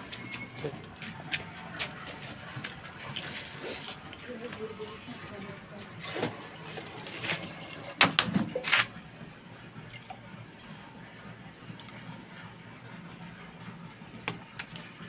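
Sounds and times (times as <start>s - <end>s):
liquid pouring: 4.9s - 8.0s.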